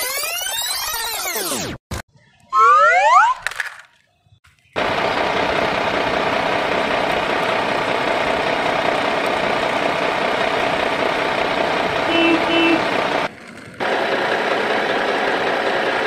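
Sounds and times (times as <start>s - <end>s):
engine idling sound effect: 4.8s - 16.0s.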